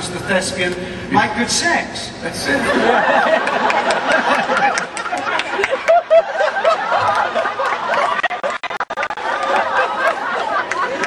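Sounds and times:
audience laughing and chattering: 0:02.4 - 0:11.0.

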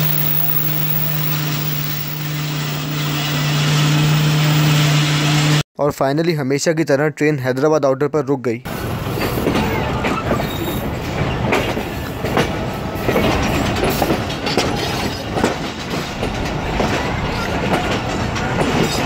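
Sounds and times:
steady train rumble: 0:00.0 - 0:05.6, 0:08.7 - 0:19.0
train wheels clattering over joints: 0:09.0 - 0:19.0.

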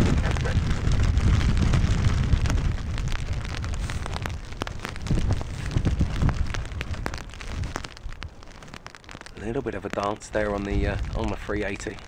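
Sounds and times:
raindrops tapping: 0:00.0 - 0:12.0
wind buffeting microphone: 0:00.0 - 0:12.0.

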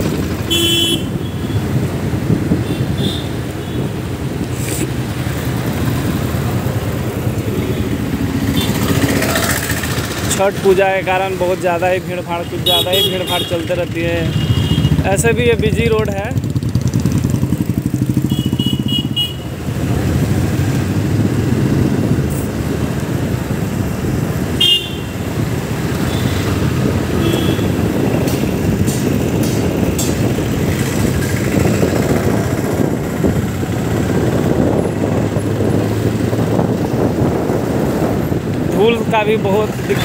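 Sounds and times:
road noise: 0:00.0 - 0:40.0
vehicle horn toots: 0:00.5 - 0:01.6, 0:14.3 - 0:15.0, 0:18.2 - 0:19.5, 0:24.6 - 0:25.2, 0:27.2 - 0:27.8
motorcycle engine running: 0:05.3 - 0:10.8, 0:13.9 - 0:22.2, 0:24.2 - 0:38.5.

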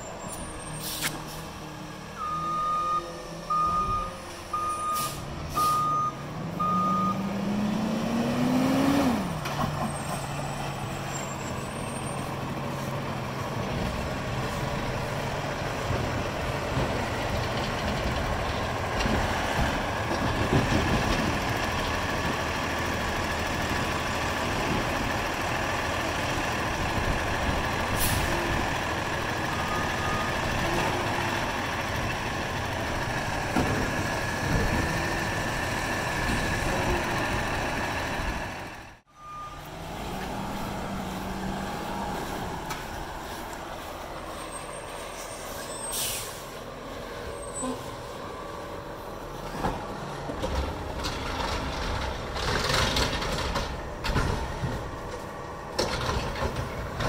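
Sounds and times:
air brakes hissing: 0:00.3 - 0:01.5, 0:04.7 - 0:05.9, 0:27.9 - 0:28.3, 0:44.4 - 0:46.6.

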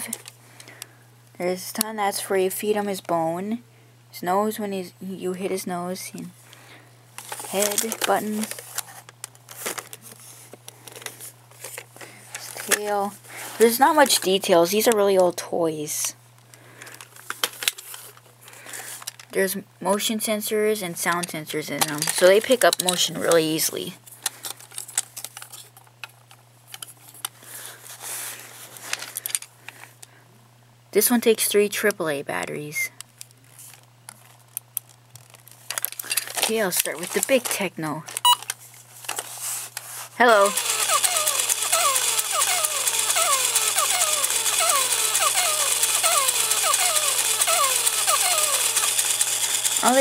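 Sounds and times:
rustling shuffle: 0:07.2 - 0:14.3, 0:26.9 - 0:29.2, 0:38.6 - 0:40.2
plastic toy clicks and knocks: 0:21.1 - 0:23.4, 0:40.4 - 0:50.0
robot dog motor rattling: 0:40.2 - 0:50.0.

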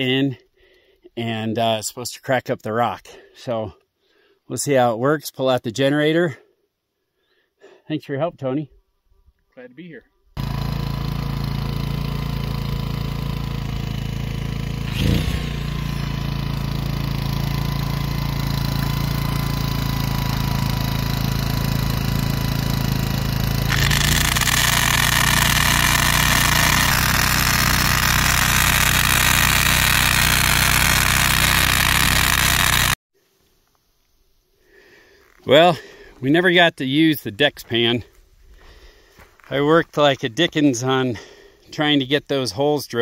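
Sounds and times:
portable generator running: 0:10.4 - 0:33.0
hammer drill boring into rock: 0:14.8 - 0:16.8, 0:17.4 - 0:33.0.

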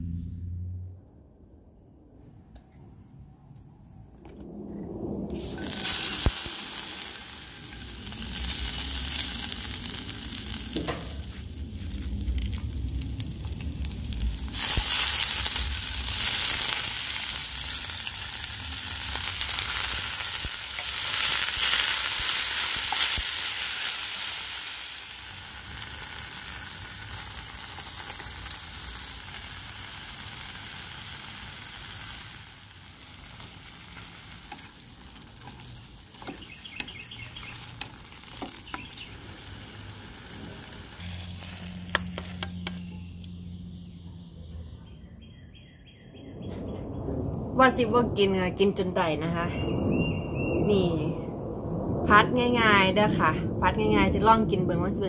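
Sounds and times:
vegetables sizzling in hot oil: 0:05.4 - 0:43.0.

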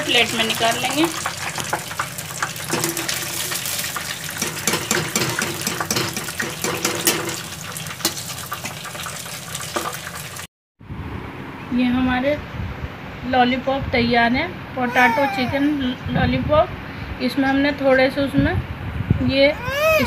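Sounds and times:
hot oil sizzling and popping: 0:00.0 - 0:10.5.

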